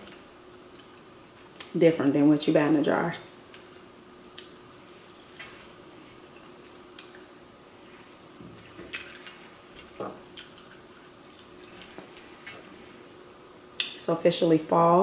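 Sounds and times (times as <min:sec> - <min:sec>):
faint steady hum: 0:00.0 - 0:15.0
chewing: 0:08.8 - 0:12.7.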